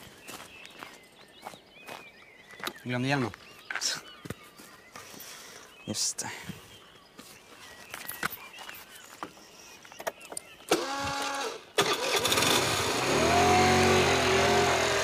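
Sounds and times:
motor scooter starting and revving: 0:10.7 - 0:15.0.

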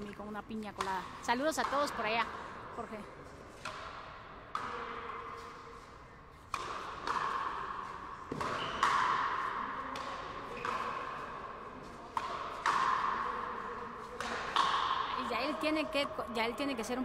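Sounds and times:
rubber ball hitting rackets and wall: 0:00.8 - 0:02.3, 0:03.5 - 0:15.2.

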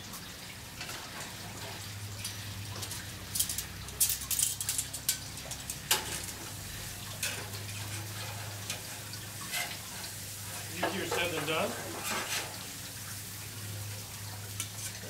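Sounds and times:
spatula and tongs scraping grill: 0:00.8 - 0:13.0, 0:14.6 - 0:15.0.

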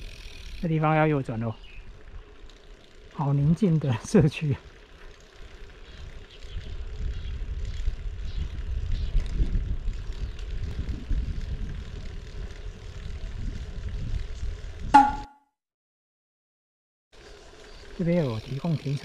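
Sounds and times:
wind buffeting microphone: 0:05.8 - 0:14.9.

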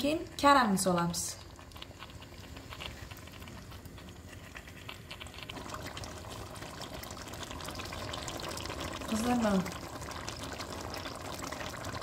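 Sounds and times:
stew sizzling and bubbling: 0:00.0 - 0:12.0.

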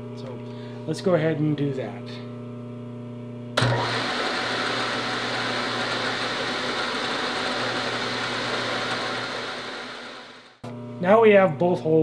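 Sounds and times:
milling machine running: 0:03.6 - 0:10.8.

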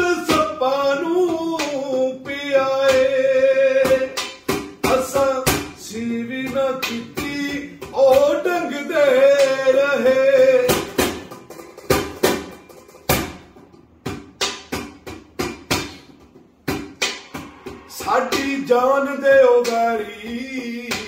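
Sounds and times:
man singing unaccompanied: 0:00.0 - 0:11.2, 0:17.9 - 0:21.0
sharp percussive strikes: 0:00.0 - 0:21.0.

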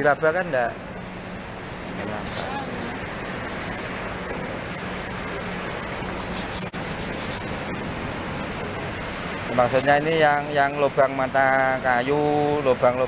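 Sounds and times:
steady low hum: 0:00.0 - 0:13.0
gloved hand rubbing plywood: 0:06.1 - 0:07.5.

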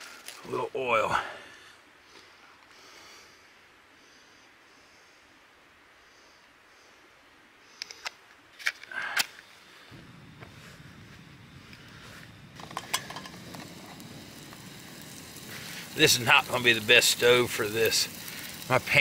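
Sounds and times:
gas burner hissing: 0:09.2 - 0:19.0
frying pan clattering: 0:12.6 - 0:13.6
match being struck: 0:12.6 - 0:16.7.

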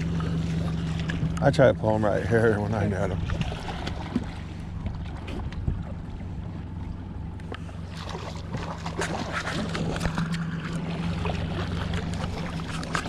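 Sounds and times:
outboard motor humming: 0:00.0 - 0:13.0
fish splashing at surface: 0:03.2 - 0:05.4, 0:07.8 - 0:13.0.

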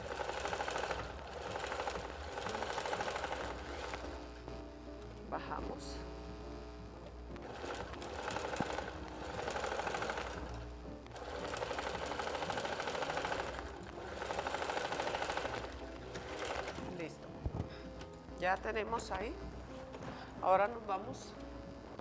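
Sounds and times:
sewing machine stitching: 0:00.0 - 0:04.2, 0:07.4 - 0:17.1.

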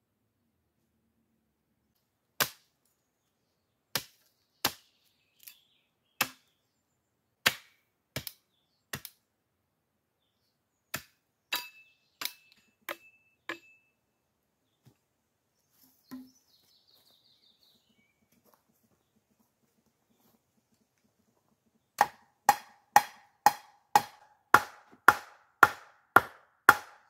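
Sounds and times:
hatchet chopping wood: 0:02.4 - 0:02.7, 0:03.9 - 0:04.9, 0:06.2 - 0:06.5, 0:07.4 - 0:09.2, 0:10.9 - 0:13.7, 0:22.0 - 0:27.0.

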